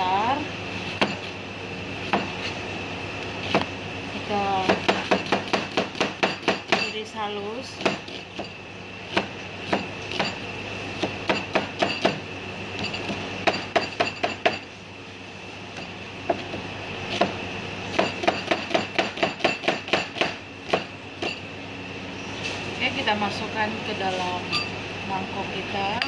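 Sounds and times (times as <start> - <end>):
cleaver chopping on cutting board: 4.7 - 6.8, 18.0 - 20.9.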